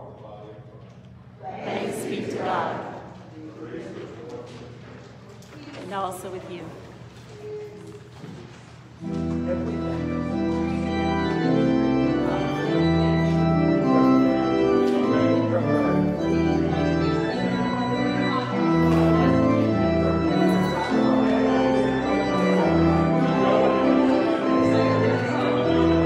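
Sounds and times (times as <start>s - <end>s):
church organ playing chords: 9.0s - 26.0s.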